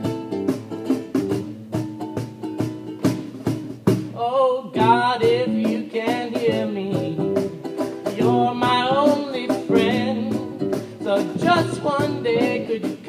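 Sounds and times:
acoustic guitars strumming: 0.0 - 13.0
person singing: 4.2 - 13.0.

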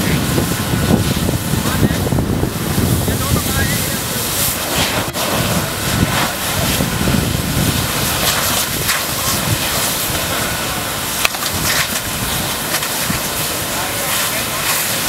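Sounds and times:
hoses spraying water: 0.0 - 15.0
sharp crack: 7.9 - 10.5, 11.1 - 15.0.

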